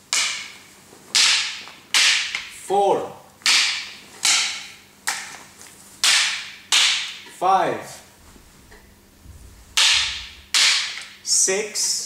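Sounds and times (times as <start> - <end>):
sticks clacking with echo: 0.1 - 2.6, 3.4 - 5.4, 6.0 - 7.4, 8.2 - 11.4.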